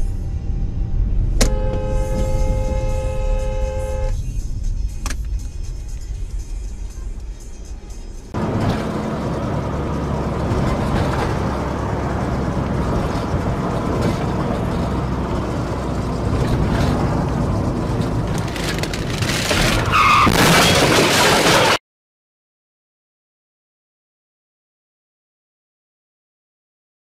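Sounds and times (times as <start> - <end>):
car engine and road noise: 0.0 - 21.8
harsh noise with squeal: 16.7 - 21.8.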